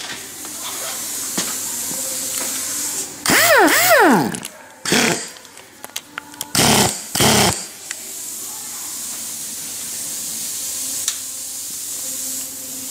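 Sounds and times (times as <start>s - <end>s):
compressed air hissing: 0.0s - 5.4s, 6.5s - 12.9s
pneumatic tool running: 3.2s - 5.4s, 6.5s - 7.8s.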